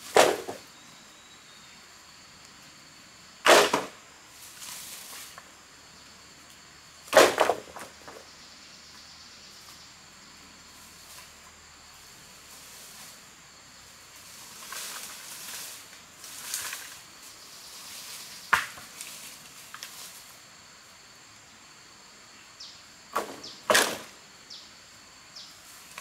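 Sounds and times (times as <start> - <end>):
high insect trill: 0.0 - 26.0
rustling on forest floor: 3.6 - 21.1, 25.4 - 26.0.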